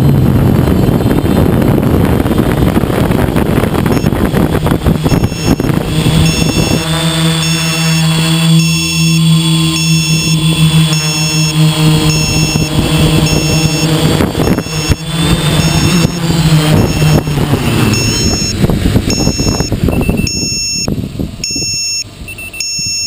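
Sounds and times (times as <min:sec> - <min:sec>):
drone propellers humming: 0:00.0 - 0:23.0
grass rustling against drone: 0:00.0 - 0:23.0
high electronic beep: 0:03.9 - 0:04.2, 0:05.0 - 0:06.8, 0:07.4 - 0:23.0.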